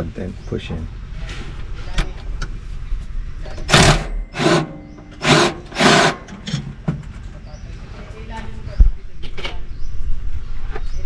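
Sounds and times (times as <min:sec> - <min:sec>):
cordless ratchet bursts: 0:03.7 - 0:06.3.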